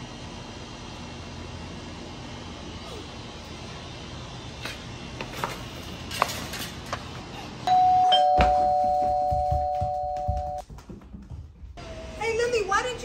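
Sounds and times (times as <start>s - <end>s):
two-tone doorbell chime: 7.7s - 10.6s.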